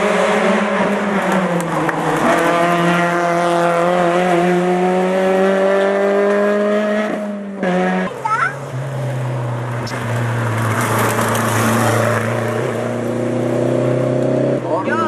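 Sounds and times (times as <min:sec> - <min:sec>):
rally car engine at high revs: 0:00.0 - 0:15.0.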